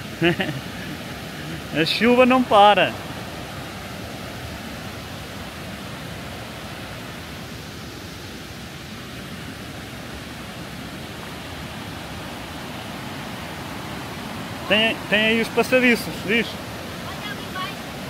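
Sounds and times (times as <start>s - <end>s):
river rushing over rocks: 0.0s - 18.0s.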